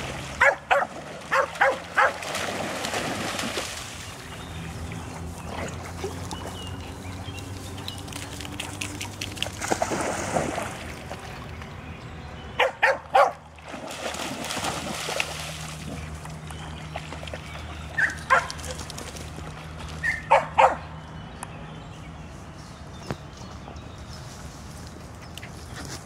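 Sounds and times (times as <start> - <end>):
water splashing: 0.0 - 20.5
dog barking: 0.4 - 2.2, 12.6 - 13.4, 18.0 - 18.5, 20.0 - 20.9.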